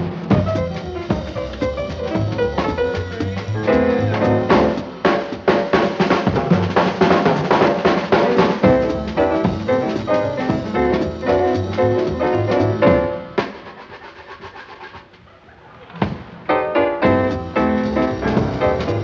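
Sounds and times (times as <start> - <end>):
bass notes: 0.0 - 4.9, 8.3 - 13.4, 17.0 - 19.0
jazz quartet playing: 0.0 - 13.6, 16.5 - 19.0
drum and cymbal strokes: 0.0 - 15.2.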